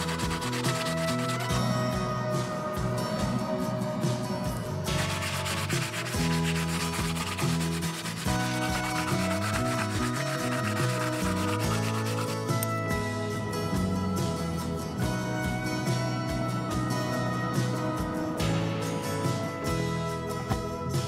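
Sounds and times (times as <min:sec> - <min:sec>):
rotary wire brush scrubbing wood: 0:00.0 - 0:01.6, 0:04.9 - 0:12.7
background music: 0:00.0 - 0:21.0.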